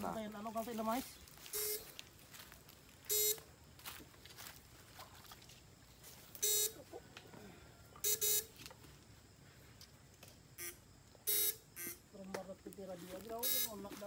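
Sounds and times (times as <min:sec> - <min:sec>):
electrofishing rig buzzing: 0:10.6 - 0:12.0.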